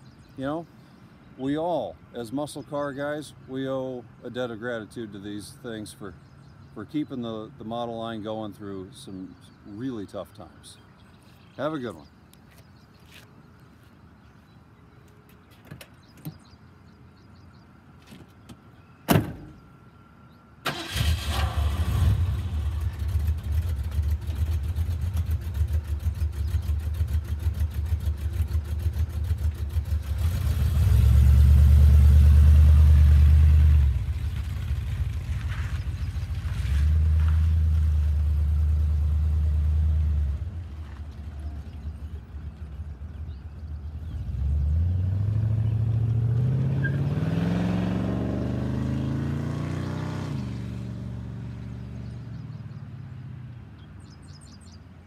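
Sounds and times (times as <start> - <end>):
car door shutting: 18.1 - 19.6
car engine starting and idling: 20.6 - 36.5
car accelerating away: 20.7 - 40.5, 43.9 - 53.4.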